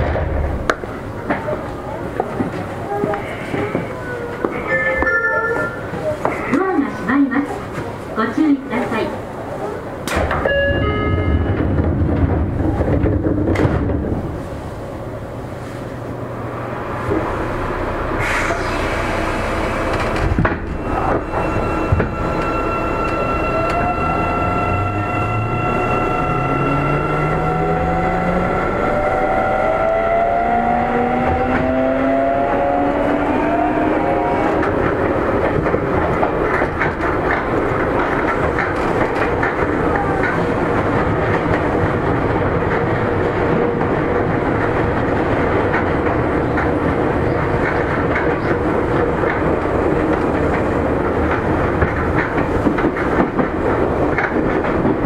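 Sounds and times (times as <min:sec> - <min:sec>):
train knocks: 0:10.0 - 0:14.5, 0:18.2 - 0:29.7, 0:30.6 - 0:55.0
wheels clattering on rails: 0:10.0 - 0:14.7, 0:34.1 - 0:55.0.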